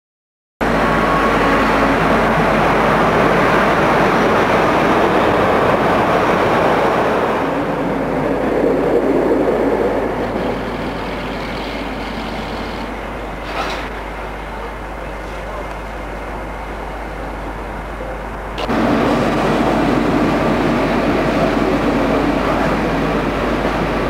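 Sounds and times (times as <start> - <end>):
train wheels rumbling on rails: 0.6 - 24.0
metal clank: 13.4 - 14.0.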